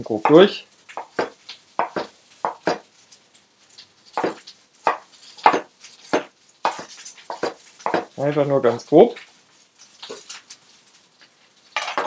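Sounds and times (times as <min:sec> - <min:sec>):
knife chopping on wooden board: 0:01.0 - 0:02.9, 0:04.2 - 0:08.1.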